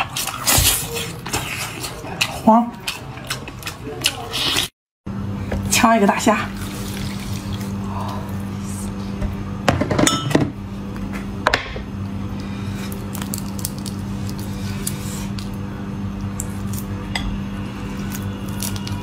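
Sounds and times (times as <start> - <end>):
low hum: 5.1 - 19.0
prawn shell peeling crackles: 12.8 - 15.6, 17.9 - 19.0.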